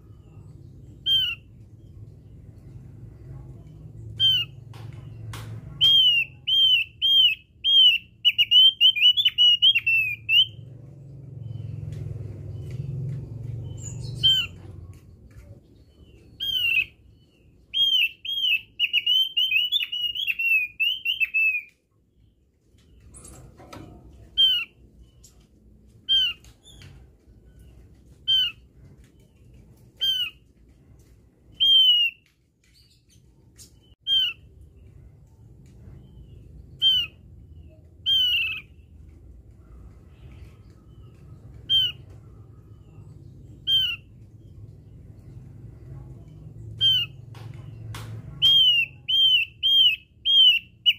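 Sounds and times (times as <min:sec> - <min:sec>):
bird whistling calls: 0:01.0 - 0:01.5, 0:05.8 - 0:10.6, 0:16.3 - 0:17.0, 0:17.7 - 0:21.7, 0:31.6 - 0:32.2, 0:33.8 - 0:34.4, 0:36.7 - 0:37.2, 0:38.0 - 0:38.7, 0:41.6 - 0:42.0, 0:48.4 - 0:50.9.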